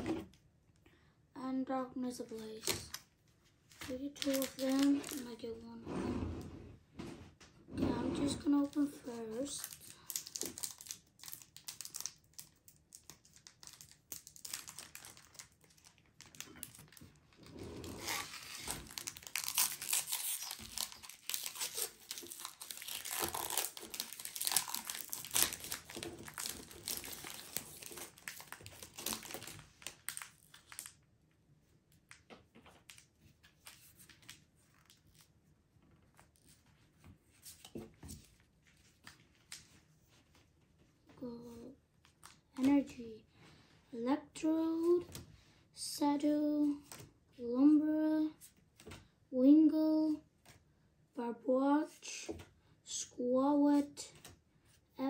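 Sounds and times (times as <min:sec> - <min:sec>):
foil wrapper tearing and crinkling: 0:03.8 - 0:05.3, 0:09.1 - 0:17.2, 0:18.0 - 0:31.0.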